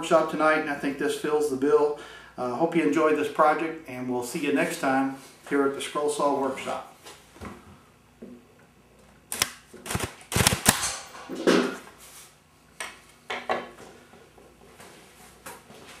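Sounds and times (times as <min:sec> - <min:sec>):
rubber band gun snapping: 0:09.3 - 0:11.1.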